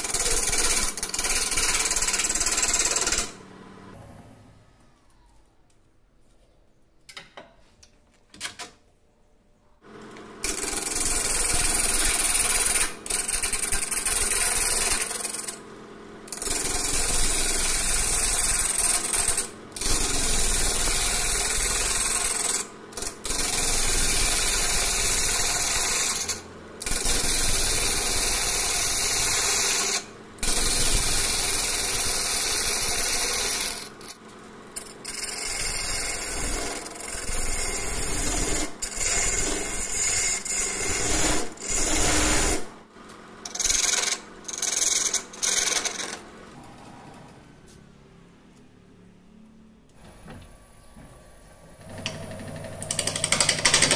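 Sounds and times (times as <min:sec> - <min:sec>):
lathe tool cutting wood: 0:10.4 - 0:15.6, 0:16.3 - 0:34.1, 0:34.8 - 0:42.6, 0:43.4 - 0:46.2.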